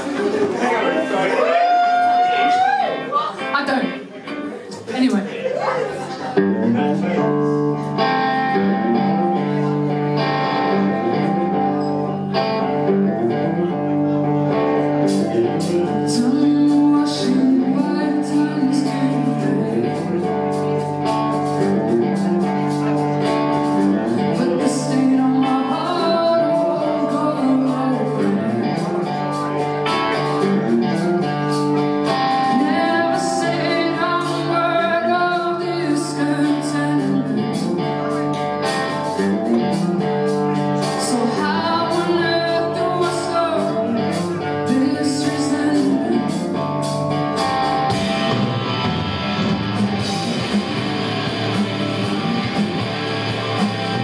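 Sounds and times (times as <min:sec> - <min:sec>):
guitar: 0:00.0 - 0:54.0
woman singing: 0:15.8 - 0:20.6, 0:24.3 - 0:28.9, 0:32.0 - 0:38.0, 0:40.8 - 0:46.6.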